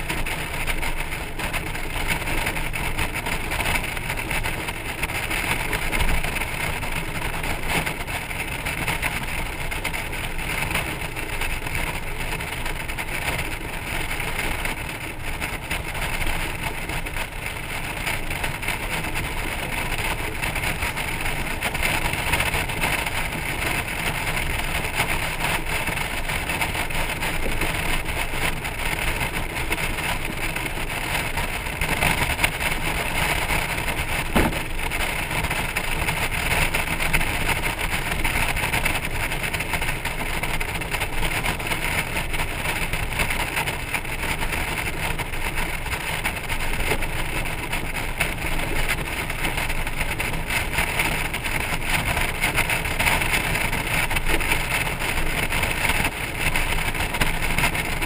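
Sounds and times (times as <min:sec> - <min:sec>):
wind and road noise: 0:00.0 - 0:58.0.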